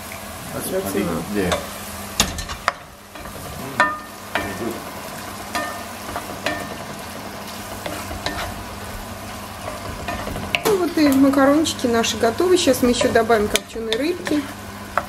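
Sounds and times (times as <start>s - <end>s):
sauce sizzling in a pan: 0.0s - 15.0s
spoon knocking and scraping pan: 1.5s - 4.7s, 5.5s - 11.4s, 12.7s - 15.0s.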